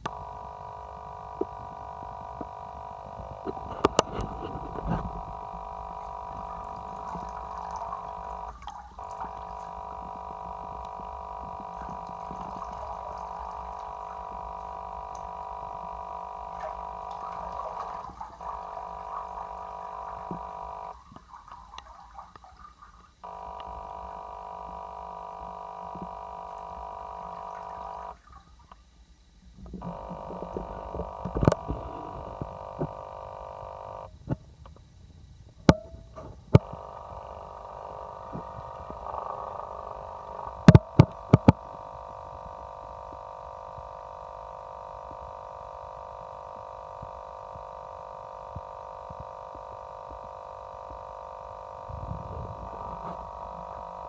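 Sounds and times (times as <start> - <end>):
high whine: 0.0 - 21.9, 23.2 - 28.3, 29.5 - 54.0
tap water running into bathtub: 3.4 - 23.1.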